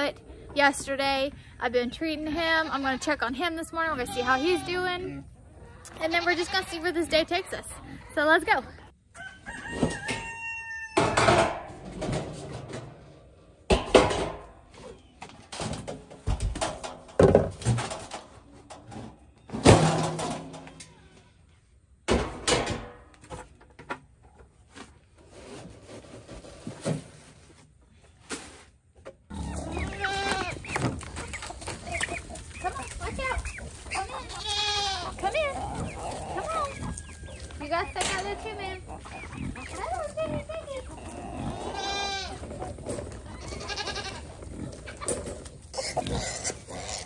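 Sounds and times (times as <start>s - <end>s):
goats bleating: 3.9s - 5.1s, 29.3s - 30.8s, 32.4s - 37.1s, 38.2s - 42.5s, 43.2s - 44.4s
rooster crowing: 9.1s - 11.2s
metal bin lids clanking: 11.0s - 13.1s, 13.7s - 14.7s, 15.4s - 20.9s, 22.1s - 23.4s
rustling and scraping: 11.1s - 21.7s, 23.0s - 47.0s.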